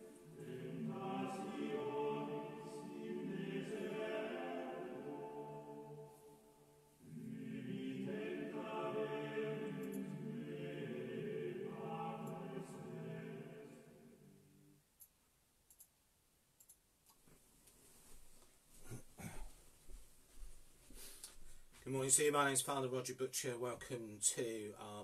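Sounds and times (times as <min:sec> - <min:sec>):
choir singing sustained chords: 0:00.0 - 0:14.8
faint clicks: 0:09.8 - 0:10.1, 0:15.0 - 0:16.0, 0:16.6 - 0:17.8.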